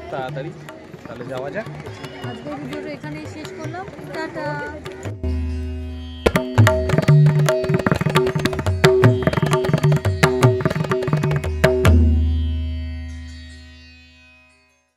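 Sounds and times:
fast tabla drum solo: 0:00.0 - 0:12.4.

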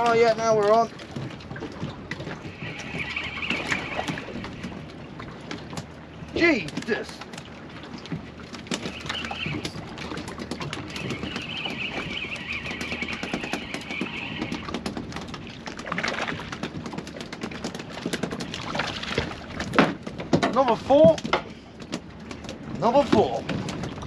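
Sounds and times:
high squeaky whine: 0:02.2 - 0:05.2, 0:08.6 - 0:15.3
fishing reel clicking and whirring: 0:02.5 - 0:04.8, 0:10.7 - 0:15.0.

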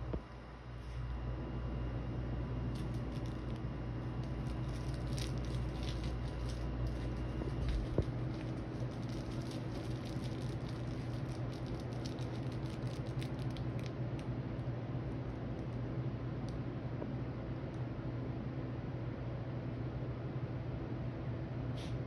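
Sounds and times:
steady low hum: 0:00.0 - 0:22.0
fabric rustling: 0:04.2 - 0:12.9.

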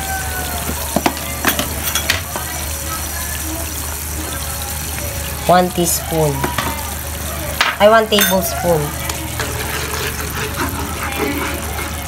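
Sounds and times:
sauce bubbling in a pan: 0:00.0 - 0:12.0
spoon stirring sauce: 0:08.1 - 0:12.0.

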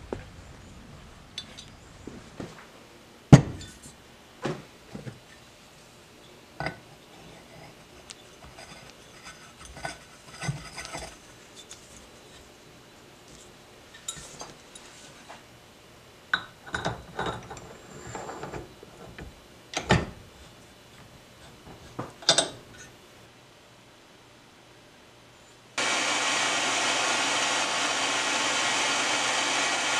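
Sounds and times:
metal tool clinking and knocking: 0:22.2 - 0:22.9.

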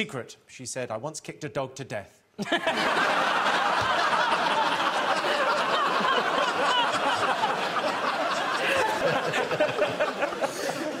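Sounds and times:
audience laughing: 0:02.4 - 0:11.0.

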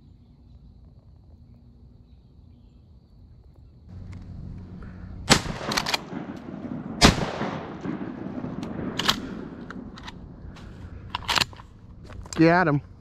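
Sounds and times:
echo of gunshot: 0:05.2 - 0:10.6.

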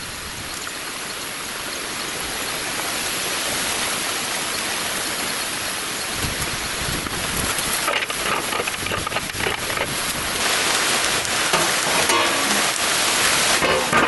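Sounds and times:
steady rain hiss: 0:00.0 - 0:14.0
short metallic ring: 0:12.0 - 0:12.7.

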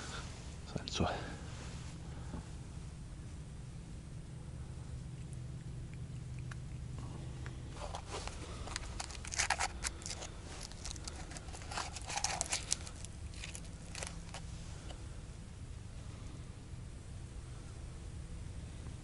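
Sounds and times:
aluminium foil crinkling: 0:07.8 - 0:14.5.

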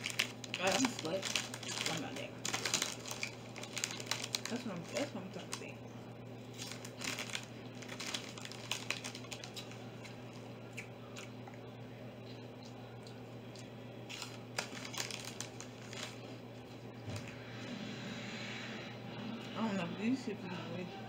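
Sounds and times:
chip bag crinkling: 0:00.0 - 0:05.7, 0:06.4 - 0:10.4, 0:14.0 - 0:16.4
potato chips crunching: 0:00.0 - 0:05.7, 0:06.5 - 0:11.4, 0:13.0 - 0:16.2
steady low hum: 0:00.0 - 0:21.0.

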